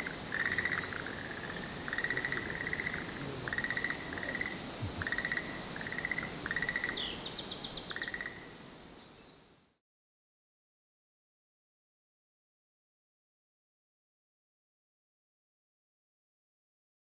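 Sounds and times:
frogs croaking: 0.0 - 8.7
ambient hiss: 0.0 - 9.8.

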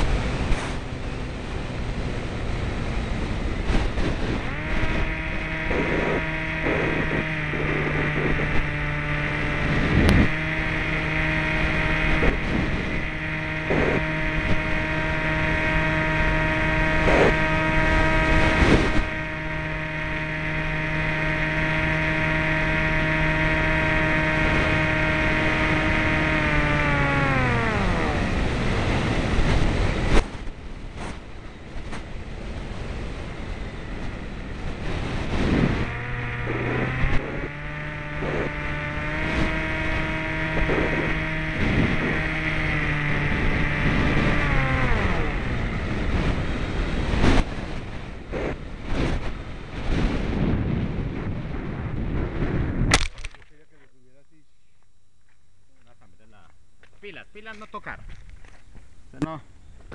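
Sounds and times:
wind rush: 0.0 - 19.8, 21.7 - 53.0
model airplane motor whining: 0.0 - 49.8
sharp clicks: 52.9 - 53.6.

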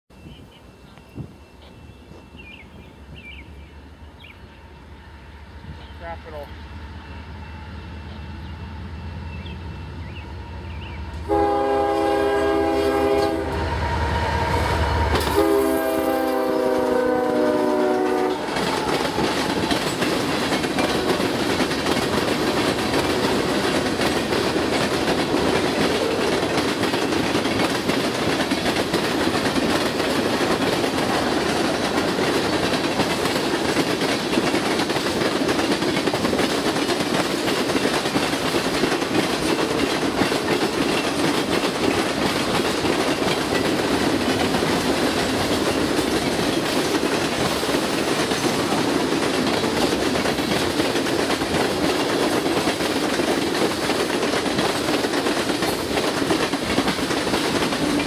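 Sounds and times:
diesel locomotive rumble: 1.0 - 58.0
train horn blasts: 10.4 - 20.0
train wheels clacking on rail joints: 14.5 - 58.0.

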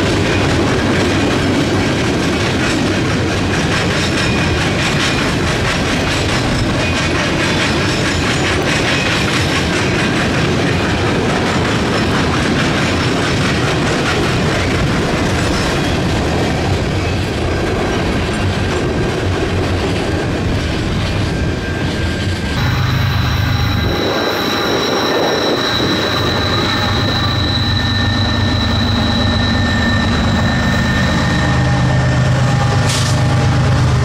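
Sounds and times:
clickety-clack over rail joints: 0.0 - 22.6, 32.5 - 34.0
train wheels rumbling on rails: 0.0 - 34.0.

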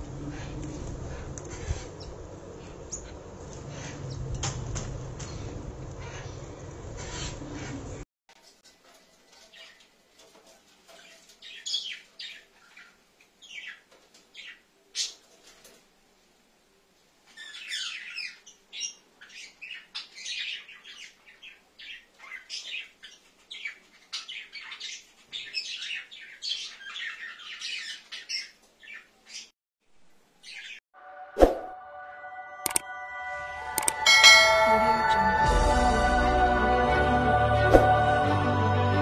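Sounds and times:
cockatiels chirping and squawking: 7.0 - 7.9.

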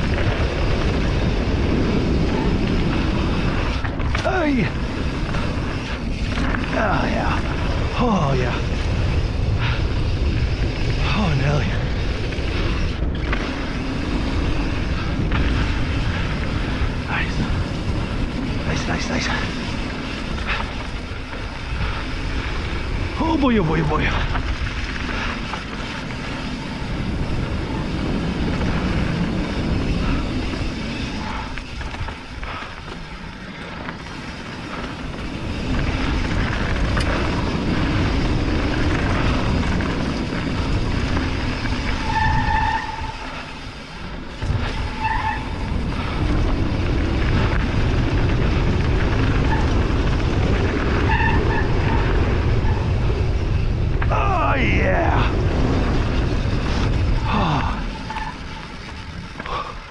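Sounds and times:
bike tyres rolling on dirt: 0.0 - 59.9
wind over microphone: 0.0 - 59.9
short high squeaks: 41.9 - 43.6.

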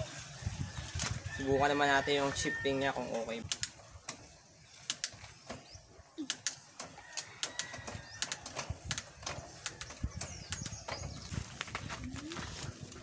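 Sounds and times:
bicycle shifter clicks: 3.4 - 3.8, 7.2 - 10.8.

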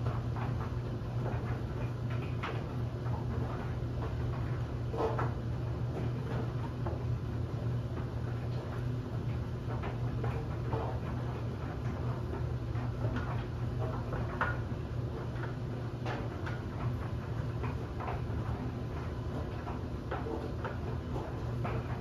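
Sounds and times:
clothes dryer humming: 0.0 - 22.0
light ticks of tumbling load: 0.0 - 22.0.

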